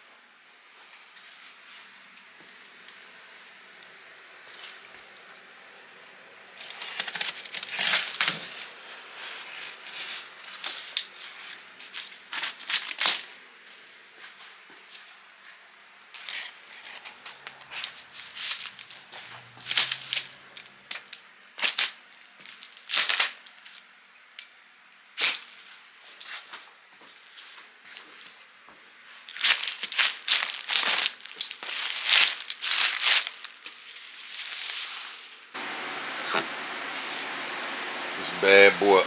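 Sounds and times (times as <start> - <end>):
cardboard ripping: 6.6 - 10.9, 29.4 - 35.0.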